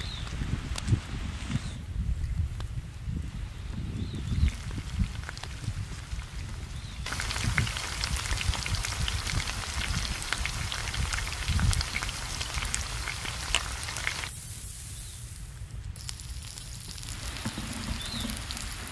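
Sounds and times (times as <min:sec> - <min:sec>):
vegetables sizzling in hot oil: 0:04.3 - 0:18.9.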